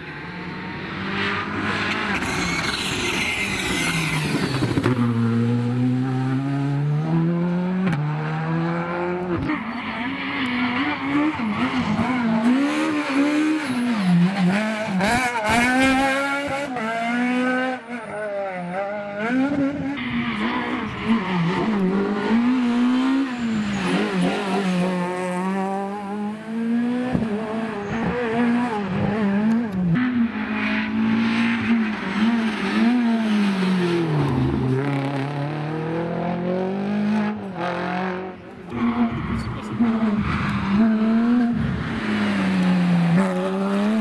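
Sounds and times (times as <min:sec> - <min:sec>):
rally car engines revving: 0:00.0 - 0:44.0.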